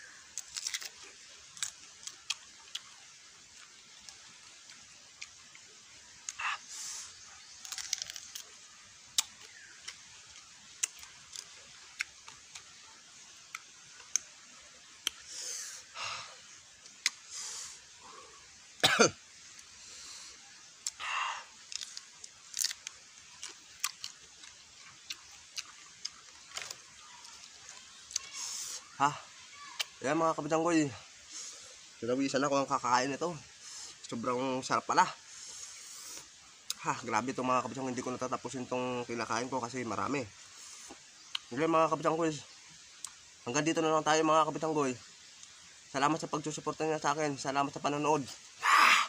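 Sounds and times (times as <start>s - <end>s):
person chewing with mouth clicks: 9.2s - 12.6s, 21.7s - 28.3s
breathy bursts: 15.2s - 16.5s, 21.0s - 21.6s, 48.6s - 49.0s
cough-like burst: 18.8s - 19.2s.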